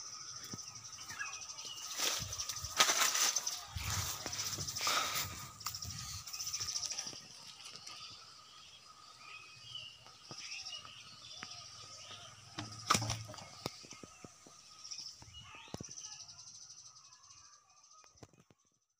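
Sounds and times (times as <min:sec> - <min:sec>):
birds chirping: 0:00.0 - 0:18.6.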